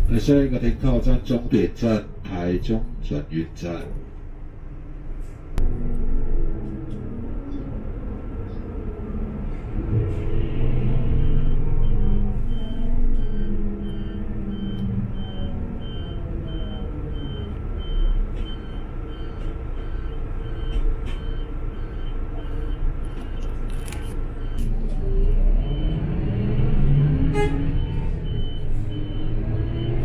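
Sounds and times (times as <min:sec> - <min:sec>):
bus engine running: 0:00.0 - 0:30.0
high electronic warning beep: 0:11.0 - 0:22.8.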